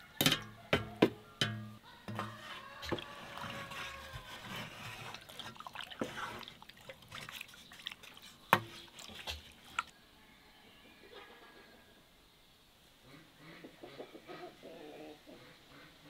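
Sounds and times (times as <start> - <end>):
spoon stirring wet curds: 0.0 - 9.9
spoon knocking on pot: 0.2 - 3.0.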